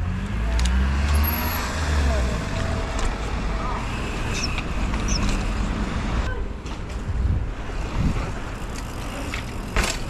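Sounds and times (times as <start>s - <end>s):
road traffic: 0.0s - 10.0s
bike tyres rumbling on paving: 6.8s - 10.0s
wind rushing over microphone: 6.9s - 8.6s.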